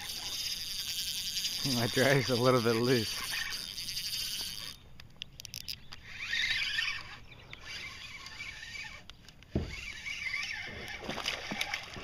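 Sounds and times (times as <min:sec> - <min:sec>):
fish thrashing and splashing water: 0:10.6 - 0:12.0.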